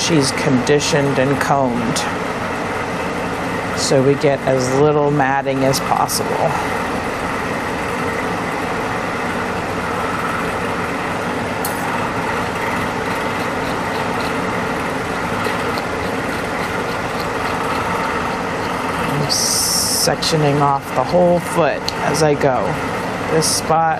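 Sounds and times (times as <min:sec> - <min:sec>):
electric blower motor drone: 0:06.2 - 0:21.3.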